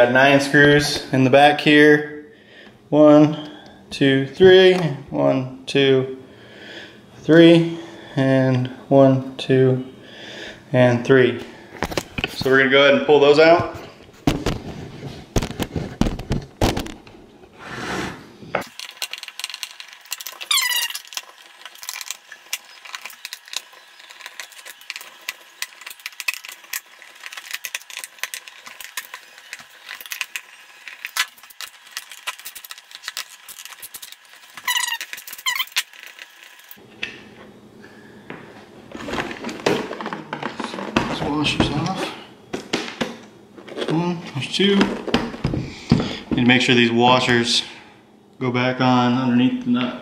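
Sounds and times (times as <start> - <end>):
short rising squeaks: 20.4 - 21.1, 34.6 - 36.6.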